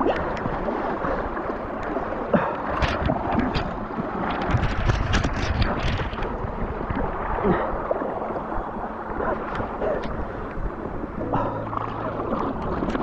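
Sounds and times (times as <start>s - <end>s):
river water gurgling and splashing: 0.0s - 13.0s
wind buffeting the microphone: 2.7s - 7.9s.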